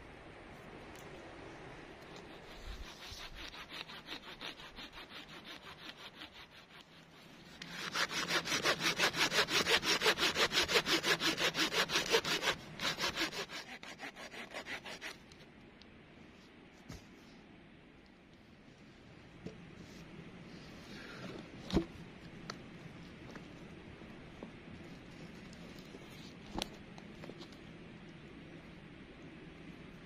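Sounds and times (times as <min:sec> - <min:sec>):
hand saw cutting log: 0:02.1 - 0:15.2.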